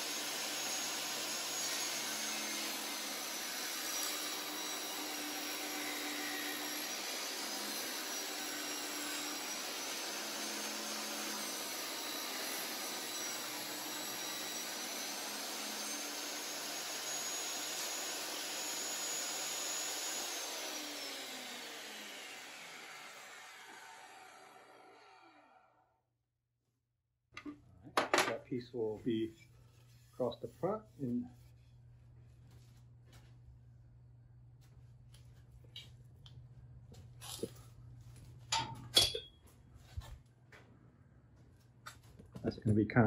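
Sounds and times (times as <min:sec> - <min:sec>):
table saw motor whine: 0:00.0 - 0:25.9.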